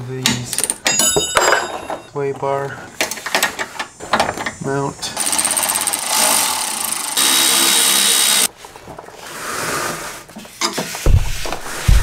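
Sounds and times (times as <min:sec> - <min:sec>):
power ratchet running: 0:05.2 - 0:08.5.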